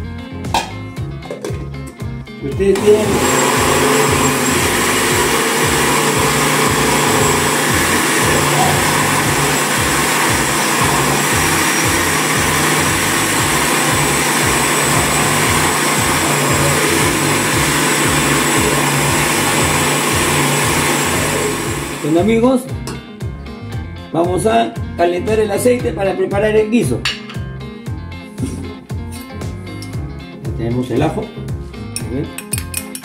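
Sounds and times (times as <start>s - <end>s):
blender running: 2.7s - 22.3s.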